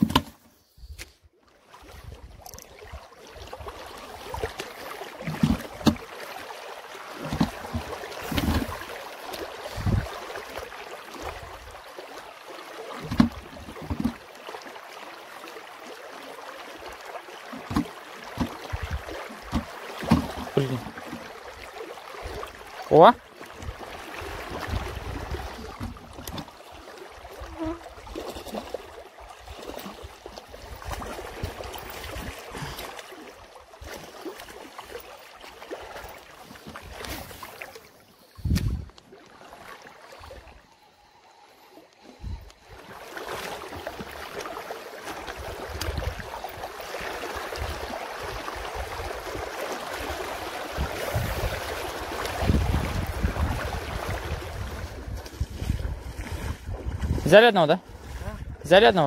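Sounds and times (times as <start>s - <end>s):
thump: 0.0s - 0.4s
wind rumbling on microphone: 9.7s - 10.1s, 23.6s - 26.3s, 38.3s - 39.0s, 50.7s - 58.7s
river water rushing over stones: 42.7s - 54.7s.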